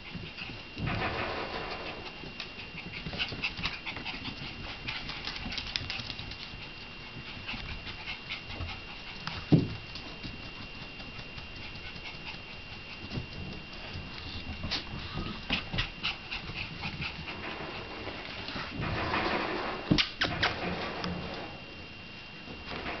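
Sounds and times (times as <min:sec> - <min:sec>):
dog panting: 0:02.0 - 0:17.6
dog claws clicking on floor: 0:02.4 - 0:06.6.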